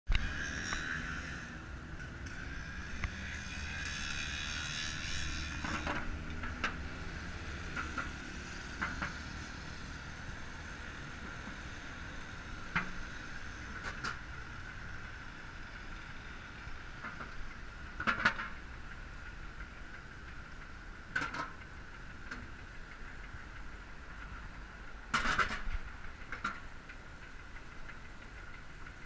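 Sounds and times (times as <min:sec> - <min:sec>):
wind and tyres rumbling: 0:00.1 - 0:29.0
bicycle clicks and rattles: 0:12.8 - 0:29.0.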